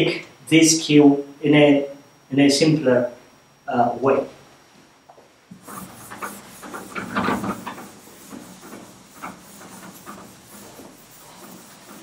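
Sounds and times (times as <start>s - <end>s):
eraser rubbing a chalkboard: 5.5s - 12.0s.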